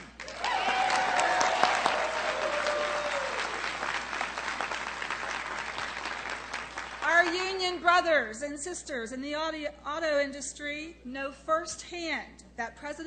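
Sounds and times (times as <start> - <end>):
crowd applauding: 0.0 - 7.3
person cheering: 0.3 - 3.7.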